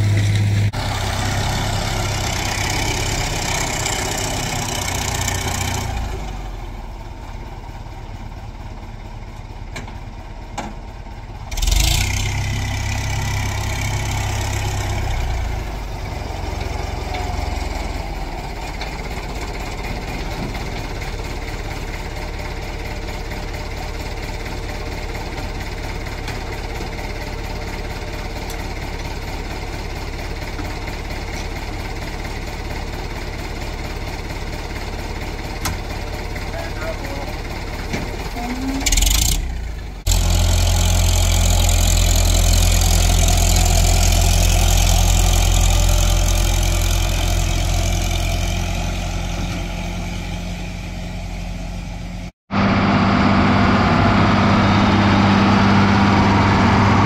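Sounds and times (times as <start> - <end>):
tractor engine idling: 0.0 - 57.0
loud machine running: 52.5 - 57.0.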